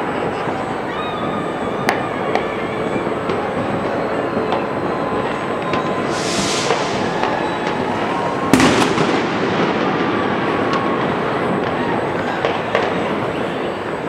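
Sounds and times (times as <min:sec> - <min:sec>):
distant fireworks rumble and crackle: 0:00.0 - 0:14.0
small firework cracks: 0:05.5 - 0:14.0
loud firework bang: 0:05.7 - 0:13.2.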